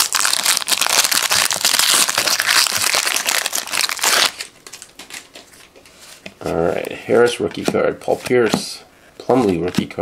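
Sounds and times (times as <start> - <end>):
foil wrapper crinkling: 0.0 - 5.7.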